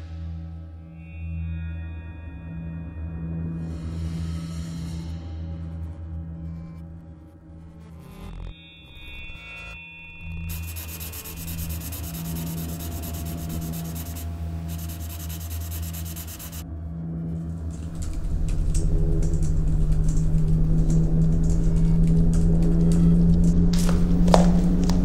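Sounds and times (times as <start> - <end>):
low drone: 0.0 - 25.0
low pulsing rumble: 10.3 - 25.0
marker scratching on paper: 10.5 - 16.6.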